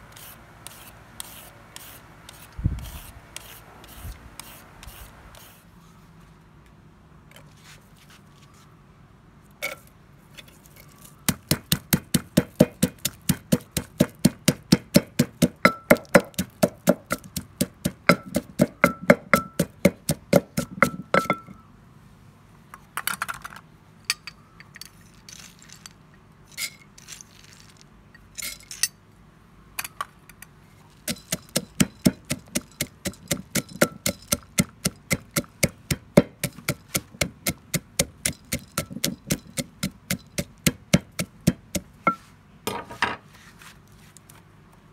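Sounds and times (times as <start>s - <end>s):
wooden pestle pounding in mortar: 11.3s - 21.5s, 31.0s - 42.2s.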